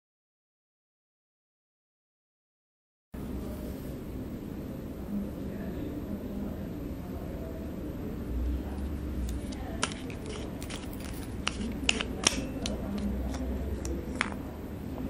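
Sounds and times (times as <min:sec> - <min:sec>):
metal clicks and scrapes: 0:09.2 - 0:14.4.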